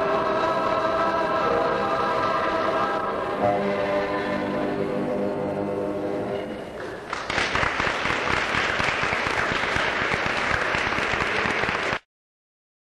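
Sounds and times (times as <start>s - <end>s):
choir singing held chord: 0.0s - 6.6s
audience applause: 6.8s - 12.0s.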